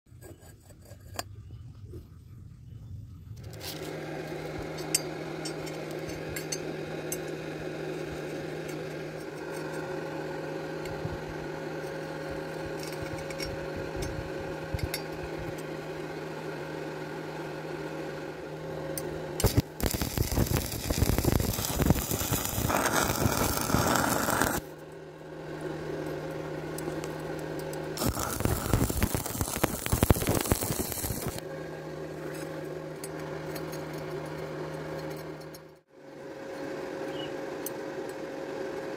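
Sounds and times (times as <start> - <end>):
electrical hum: 0.2 - 38.9
welding arc crackling and sizzling: 18.7 - 24.8, 25.5 - 31.5.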